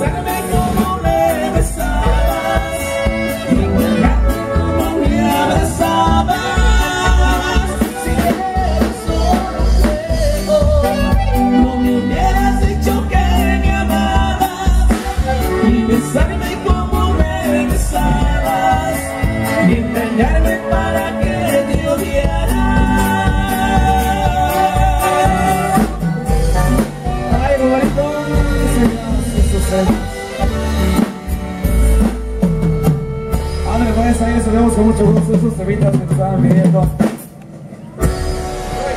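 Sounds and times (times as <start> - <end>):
person singing: 0.0 - 30.8
live band playing dance music: 0.0 - 38.9.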